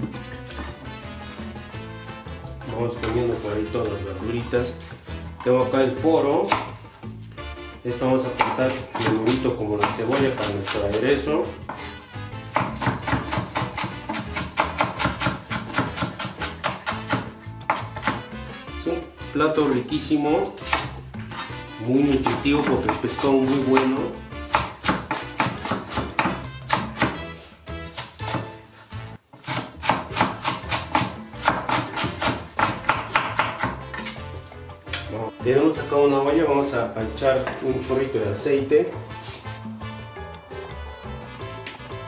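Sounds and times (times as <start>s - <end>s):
knife chopping on wooden board: 0.0s - 1.4s, 6.4s - 6.8s, 8.2s - 18.4s, 20.6s - 28.6s, 29.3s - 34.3s
latin music: 0.0s - 29.3s, 30.1s - 42.0s.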